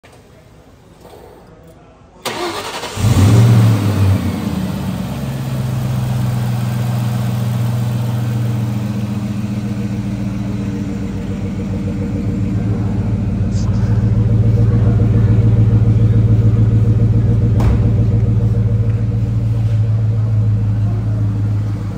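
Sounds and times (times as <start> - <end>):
starter motor cranking: 2.3 - 3.2
car engine revving and idling: 2.3 - 21.9.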